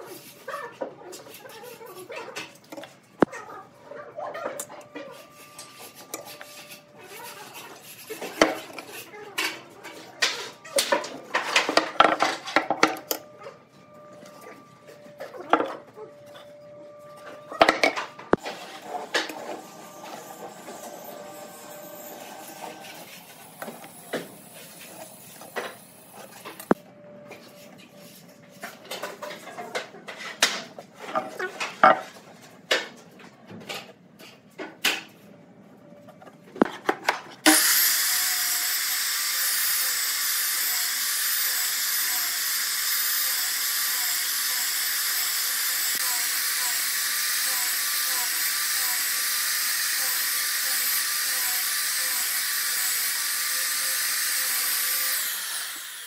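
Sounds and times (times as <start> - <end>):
miter saw whining: 13.1 - 26.8, 37.5 - 56.0.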